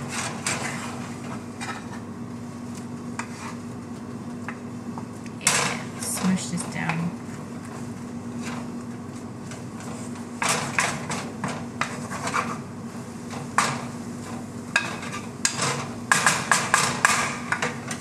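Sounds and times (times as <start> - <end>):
wooden spatula scraping frying pan: 0.0 - 2.1, 3.2 - 3.8, 7.6 - 17.8.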